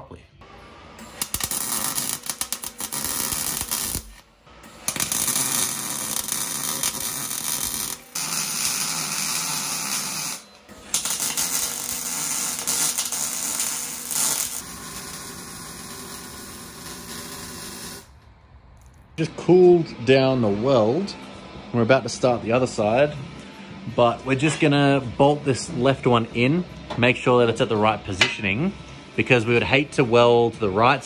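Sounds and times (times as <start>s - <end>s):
welder arc crackling and buzzing: 0.9s - 18.2s.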